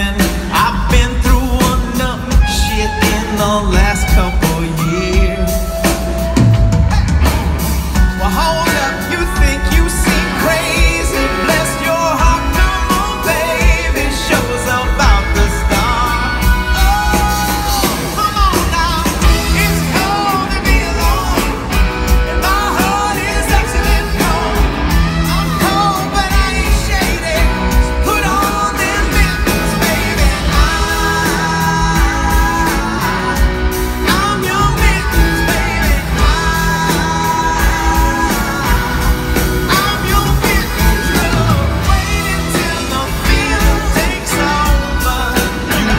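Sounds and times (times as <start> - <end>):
man singing: 0.0 - 7.0, 7.8 - 45.9
live rock band: 0.0 - 45.9.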